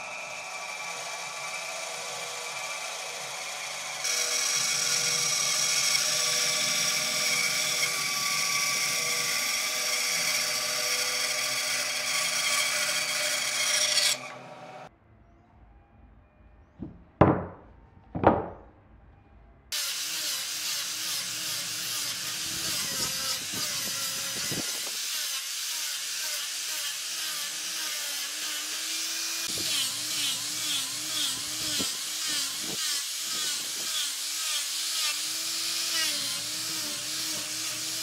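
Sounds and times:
angle grinder sanding wood: 0:00.0 - 0:14.9, 0:19.7 - 0:38.0
sharp wooden knocks: 0:16.8 - 0:17.6, 0:18.2 - 0:18.7.

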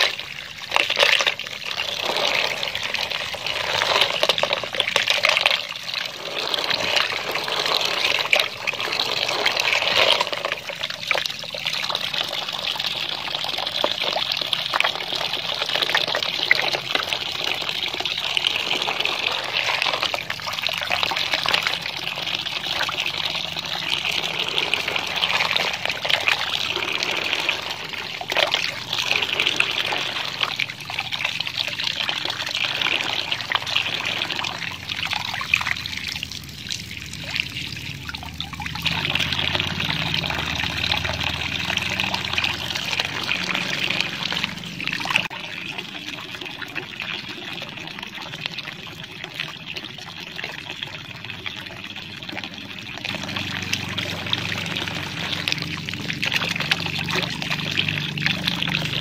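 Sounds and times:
hands rubbing snails in water: 0:00.0 - 0:13.0, 0:13.6 - 0:45.3
water pouring into basin: 0:00.0 - 0:59.0.

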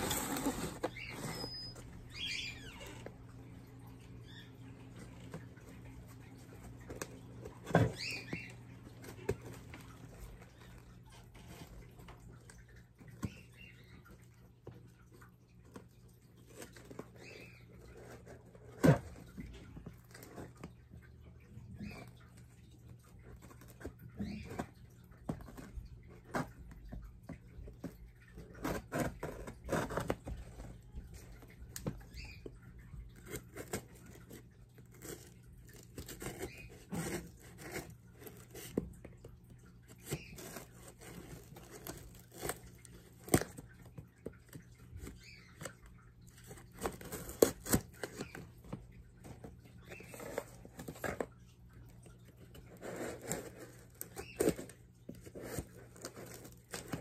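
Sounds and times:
knife scraping cardboard: 0:00.0 - 0:01.7.

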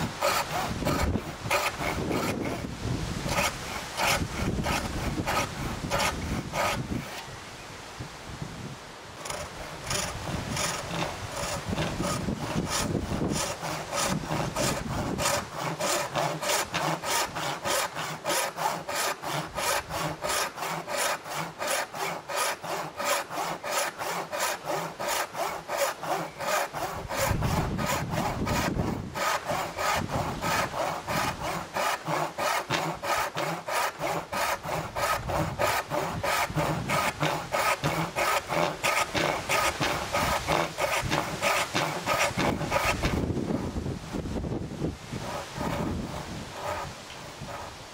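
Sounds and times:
hand saw cutting wood: 0:00.0 - 0:07.3, 0:09.2 - 0:47.9.

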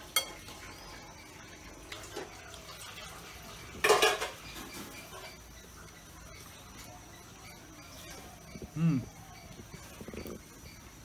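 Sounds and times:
spoon clinking on ceramic bowls: 0:00.0 - 0:00.6.

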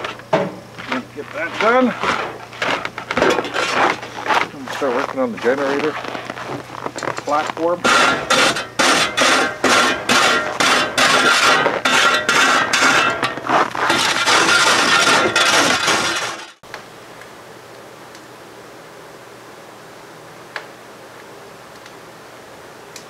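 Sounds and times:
snow shovel scraping wooden stairs: 0:00.8 - 0:16.5
faint steady hiss: 0:16.7 - 0:23.0.

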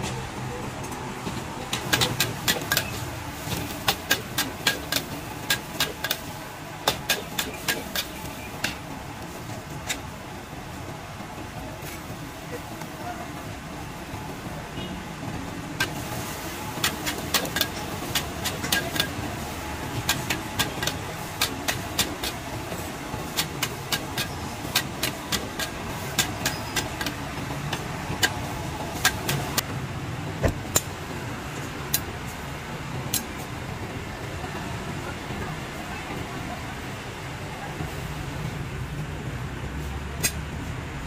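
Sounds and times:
street traffic: 0:00.0 - 0:41.0.

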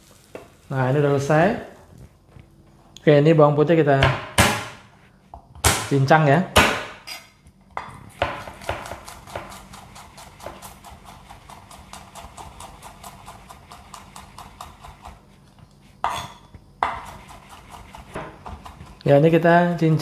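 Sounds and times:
knife chopping on wooden board: 0:04.0 - 0:04.8, 0:06.6 - 0:07.0, 0:07.8 - 0:15.2, 0:16.0 - 0:19.0.

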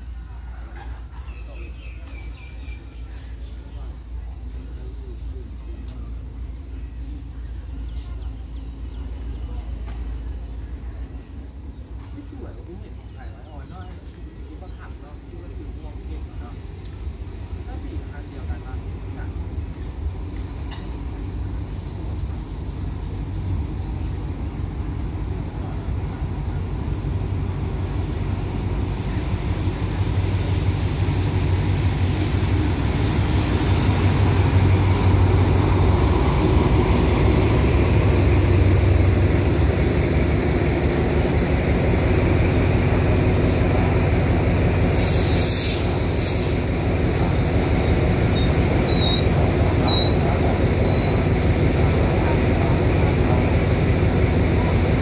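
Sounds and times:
diesel locomotive engine drone: 0:00.0 - 0:55.0
train coaches rolling past: 0:00.0 - 0:55.0
brakes hissing: 0:13.9 - 0:55.0.

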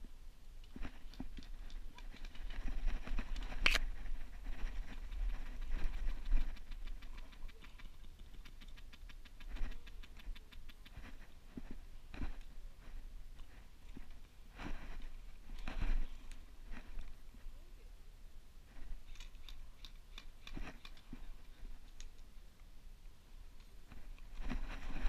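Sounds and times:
rustling of plants against camera: 0:00.6 - 0:17.7, 0:18.6 - 0:22.4, 0:23.5 - 0:25.0
wind rumble on microphone: 0:00.7 - 0:07.6, 0:23.9 - 0:25.0.

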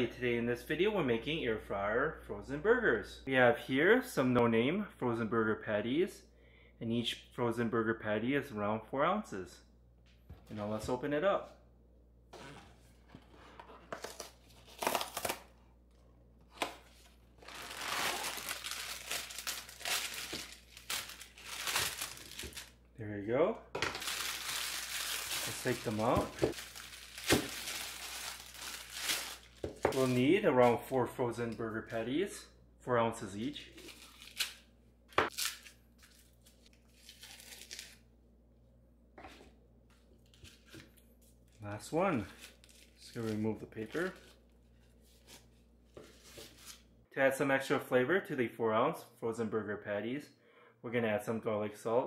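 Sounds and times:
plastic wrap crinkling: 0:16.5 - 0:22.8, 0:23.9 - 0:30.8, 0:35.2 - 0:38.0, 0:42.3 - 0:45.5.

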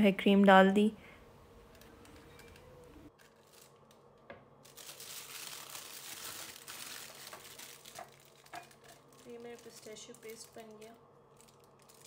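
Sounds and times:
plastic bag crinkling: 0:01.8 - 0:12.0.

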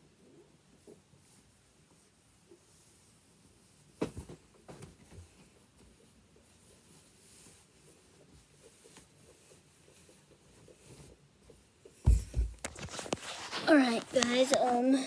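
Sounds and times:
clothing rustling: 0:01.2 - 0:15.0
soft knocks: 0:12.0 - 0:12.8.

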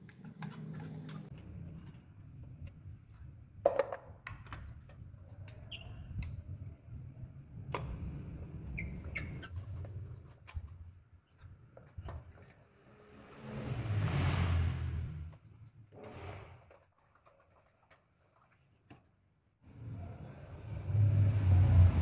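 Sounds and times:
brief squeaks: 0:08.7 - 0:09.8.

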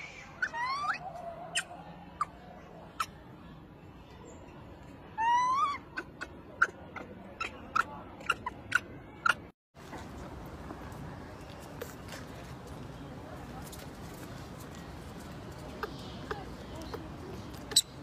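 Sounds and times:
infant monkey crying: 0:00.0 - 0:03.2, 0:05.1 - 0:09.5.

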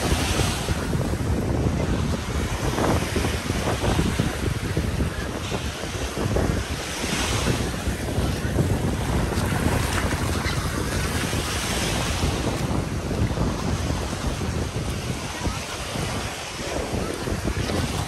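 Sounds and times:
sea surf washing onto beach: 0:00.0 - 0:18.0
wind buffeting microphone: 0:00.0 - 0:18.0.

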